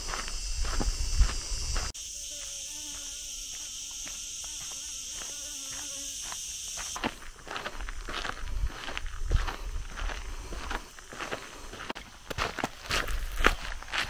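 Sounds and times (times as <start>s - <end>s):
fly buzzing: 0.0s - 8.6s
insects shrilling: 0.0s - 11.9s
footsteps on gravel: 0.0s - 14.0s.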